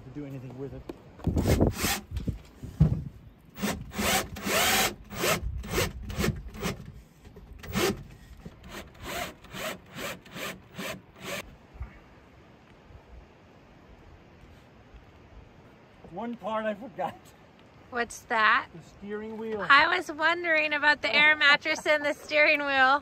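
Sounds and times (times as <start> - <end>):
cordless drill driving screws: 3.6 - 6.9, 7.6 - 11.4.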